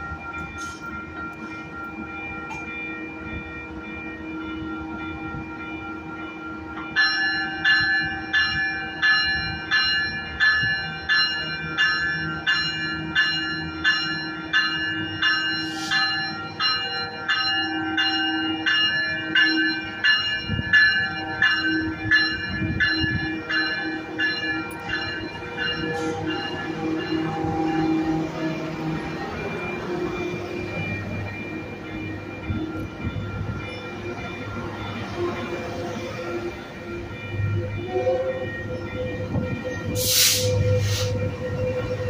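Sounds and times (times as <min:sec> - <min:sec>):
idling train hum: 0:00.0 - 0:07.0, 0:19.2 - 0:42.0
train warning bell ringing: 0:00.0 - 0:42.0.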